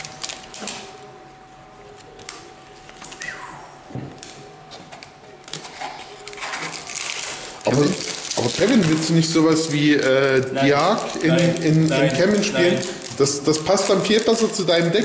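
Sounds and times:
cards and foil wrappers rustling: 0:00.0 - 0:00.9, 0:05.5 - 0:15.0.

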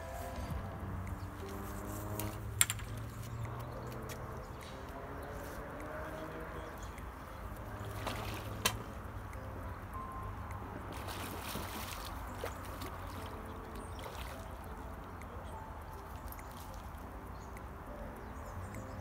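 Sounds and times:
low rumble of wind: 0:00.0 - 0:19.0
water splashes from a fish: 0:01.4 - 0:09.5, 0:10.9 - 0:17.8.

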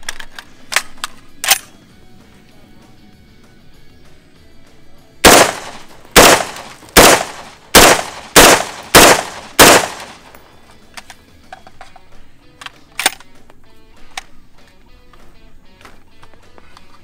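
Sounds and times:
rifle shots: 0:05.2 - 0:10.4.

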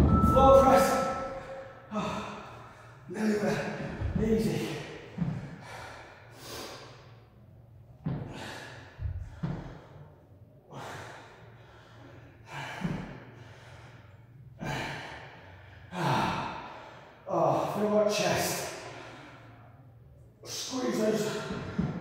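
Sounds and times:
man breathing hard: 0:03.7 - 0:07.5, 0:08.2 - 0:17.3, 0:18.7 - 0:20.0.

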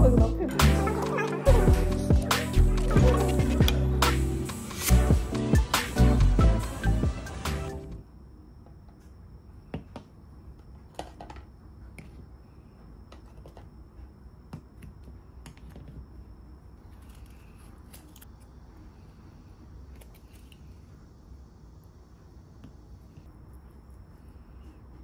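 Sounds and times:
background music: 0:00.0 - 0:08.0.

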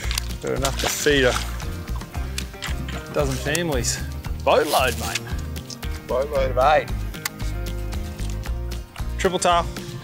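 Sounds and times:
background music with bass line: 0:00.0 - 0:10.0.

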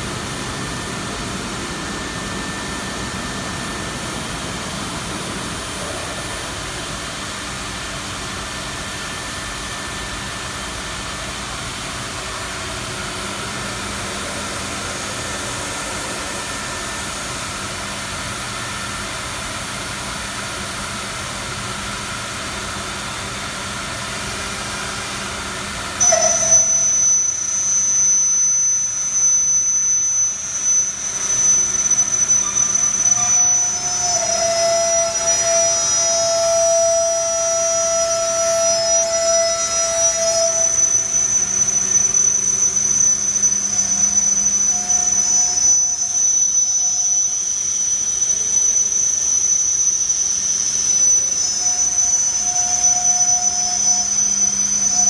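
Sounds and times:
machine hiss with low hum: 0:00.0 - 0:55.0
router spindle whine: 0:00.0 - 0:55.0.

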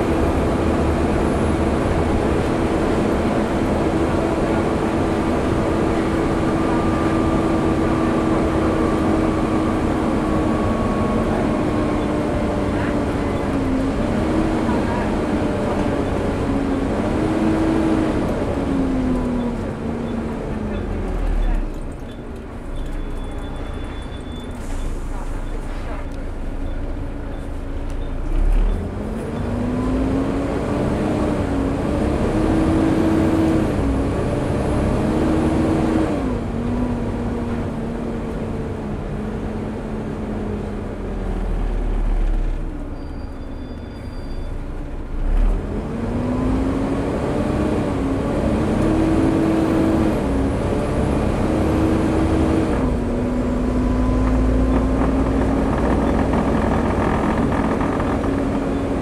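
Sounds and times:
bus diesel engine accelerating: 0:00.0 - 0:59.0
gear change thump: 0:54.2 - 0:59.0.

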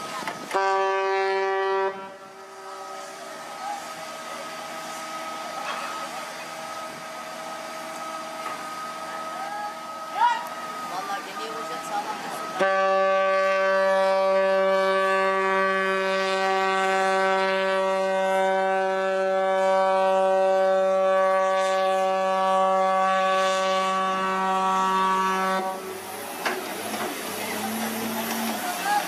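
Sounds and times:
long loud horn blast: 0:00.5 - 0:03.2, 0:12.6 - 0:25.9.

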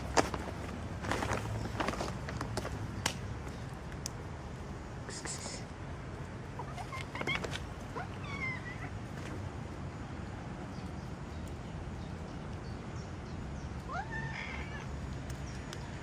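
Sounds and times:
cat meowing: 0:08.0 - 0:08.9, 0:13.9 - 0:14.9.

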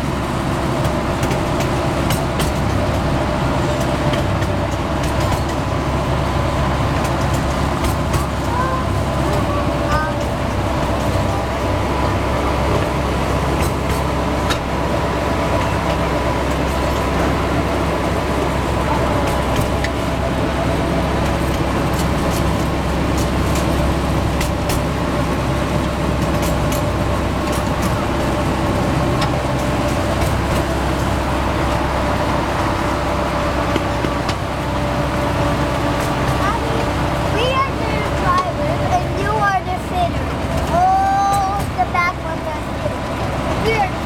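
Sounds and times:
train engine drone: 0:00.0 - 0:44.0
train rolling rumble: 0:00.0 - 0:44.0
light rattles and ticks: 0:00.8 - 0:14.8, 0:35.2 - 0:44.0.

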